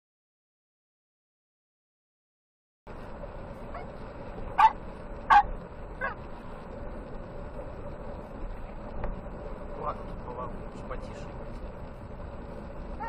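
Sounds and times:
faint steady hum: 2.9s - 13.0s
road and engine noise inside car: 2.9s - 13.0s.

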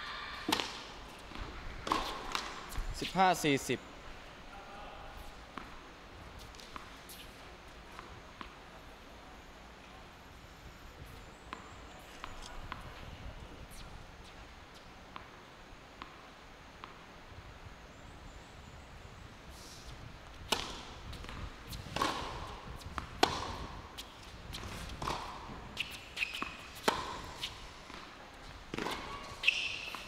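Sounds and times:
racket hitting tennis ball: 0.5s - 2.8s, 20.5s - 30.0s
tennis ball bouncing on court: 0.5s - 2.8s, 20.5s - 30.0s.

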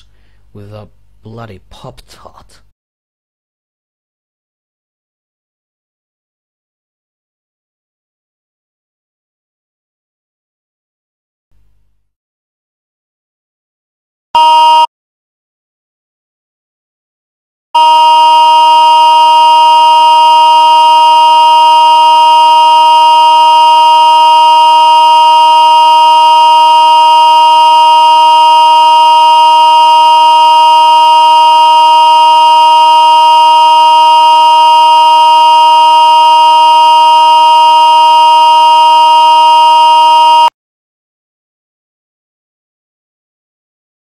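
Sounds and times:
steady electronic tone: 17.8s - 40.5s.

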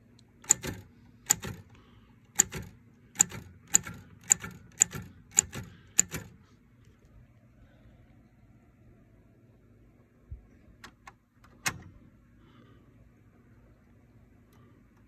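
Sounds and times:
typewriter keys clacking: 0.4s - 1.7s, 2.4s - 6.3s.

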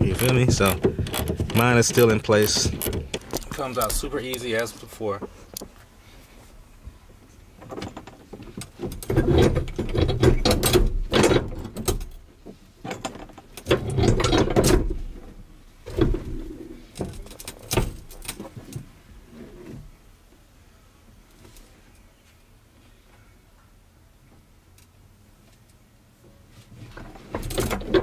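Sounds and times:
metal seat frame clunking: 0.0s - 4.4s.

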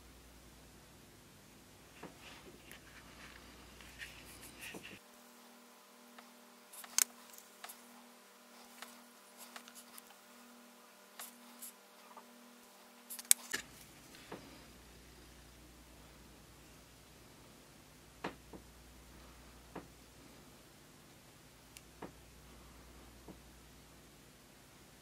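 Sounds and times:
screwdriver clicking and scraping: 6.8s - 7.8s, 13.1s - 13.6s.

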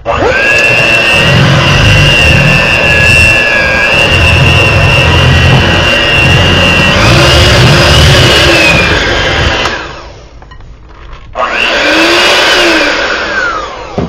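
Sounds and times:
electric hand mixer whining: 0.0s - 10.4s, 11.3s - 14.0s.

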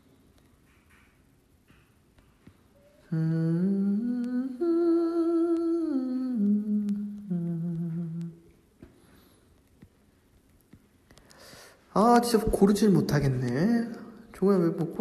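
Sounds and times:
man humming a melody: 2.8s - 8.5s.

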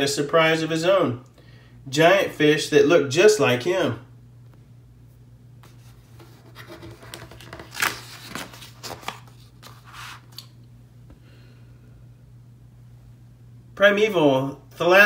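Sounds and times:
low steady hum: 0.0s - 15.0s
paper pages rustling: 5.6s - 10.6s.

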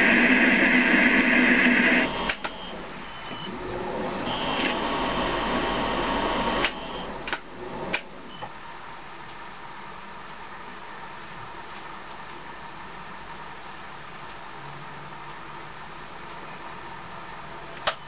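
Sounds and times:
metal lathe running: 0.0s - 8.3s
high cutting noise: 0.0s - 8.4s
sharp clicks: 2.2s - 2.7s, 6.6s - 8.2s.

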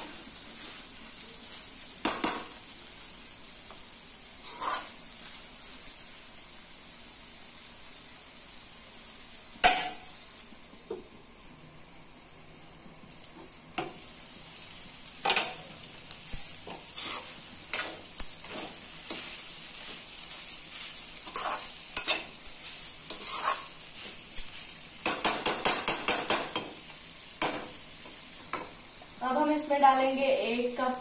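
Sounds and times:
food sizzling in a pan: 0.0s - 31.0s
metal spoon scraping a pan: 4.4s - 6.0s, 16.5s - 28.8s.

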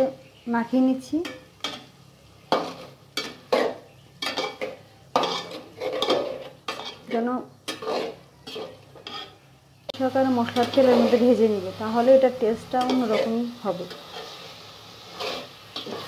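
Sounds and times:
light sizzling: 0.0s - 16.0s
spoon scraping in metal pot: 2.5s - 9.5s, 10.5s - 11.4s, 12.7s - 16.0s.

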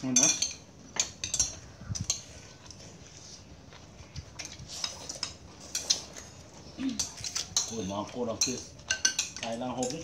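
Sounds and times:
spoons clinking on ceramic plates: 0.0s - 2.3s, 7.0s - 10.0s.

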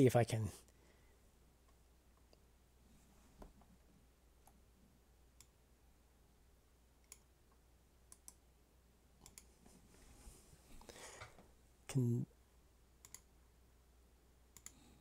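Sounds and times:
faint computer mouse clicks: 8.1s - 8.4s, 9.2s - 9.5s, 13.0s - 13.3s, 14.6s - 14.8s.

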